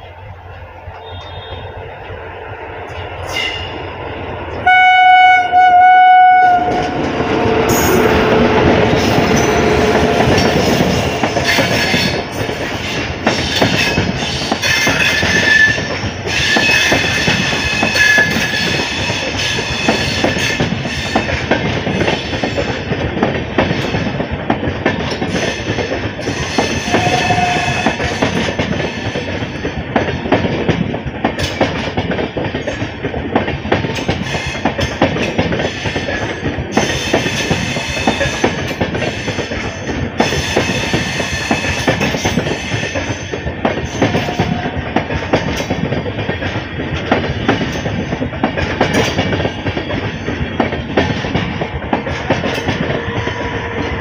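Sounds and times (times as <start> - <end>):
train wheels clickety-clack: 0.0 - 54.0
locomotive horn blast: 1.0 - 1.8, 4.6 - 7.1, 26.8 - 28.2.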